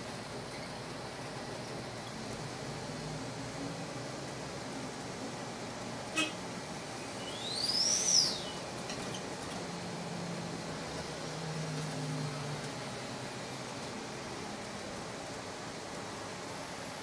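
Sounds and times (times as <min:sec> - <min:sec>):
bus cabin rumble and hiss: 0:00.0 - 0:17.0
high whistling tone: 0:07.2 - 0:08.6.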